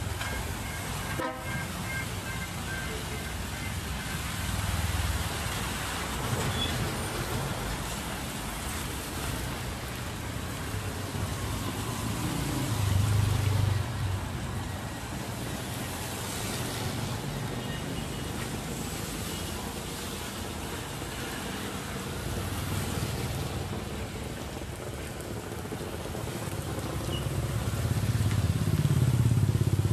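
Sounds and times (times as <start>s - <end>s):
motorbike and car engines: 0.0s - 29.9s
tyres hissing on wet asphalt: 0.0s - 29.9s.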